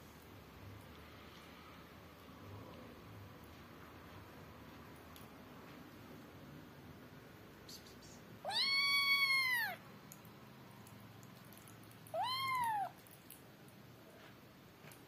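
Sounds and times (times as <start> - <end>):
kitten meowing: 8.4 - 9.8, 12.1 - 13.0.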